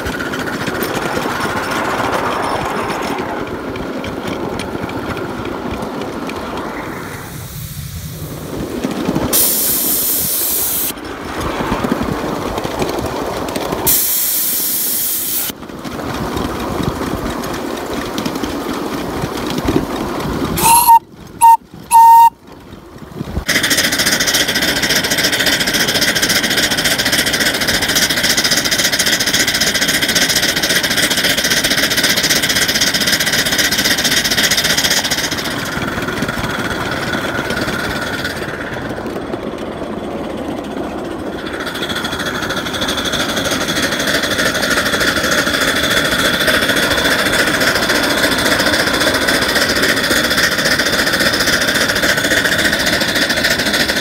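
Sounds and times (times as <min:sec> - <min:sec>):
steam locomotive running: 0:00.0 - 0:54.0
hard bursts of steam hiss: 0:07.1 - 0:11.0, 0:13.9 - 0:15.5
steam whistle blasts: 0:20.6 - 0:22.4.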